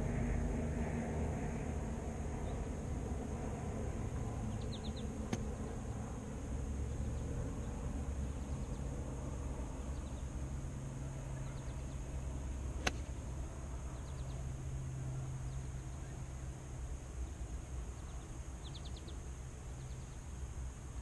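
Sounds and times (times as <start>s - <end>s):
low background hum: 0.0s - 21.0s
golf club striking ball: 5.3s - 5.5s, 12.8s - 13.2s.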